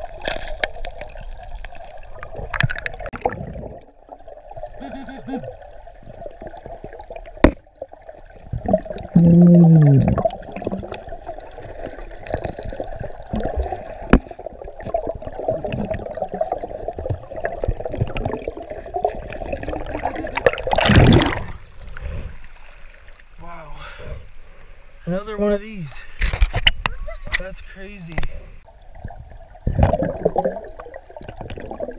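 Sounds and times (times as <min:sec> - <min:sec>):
underwater river wash: 0:00.0 - 0:31.9
rushing splash: 0:19.4 - 0:21.6.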